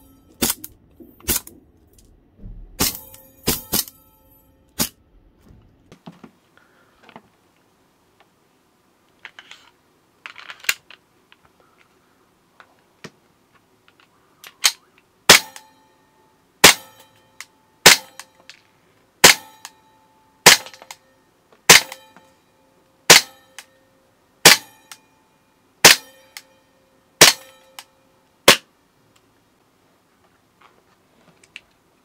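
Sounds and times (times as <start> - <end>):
short metallic ring: 0.0 - 1.4, 2.5 - 5.0, 16.8 - 18.4, 21.8 - 22.6, 23.2 - 23.9, 24.6 - 25.4, 26.0 - 28.1
airsoft pistol shots cracking: 0.4 - 1.6, 2.6 - 4.0, 15.3 - 15.7, 17.8 - 18.2, 20.5 - 20.9, 24.5 - 24.7, 27.2 - 27.6.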